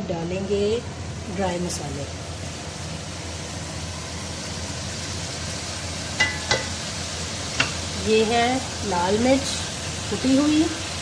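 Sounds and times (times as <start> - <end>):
food sizzling in oil: 0.1 - 11.0
metallic ring: 6.2 - 6.8.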